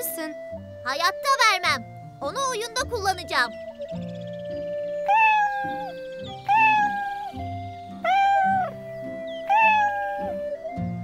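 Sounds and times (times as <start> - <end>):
soft background music: 0.0 - 11.0
cartoon cub mewing: 5.0 - 7.4, 8.0 - 8.8, 9.4 - 10.5.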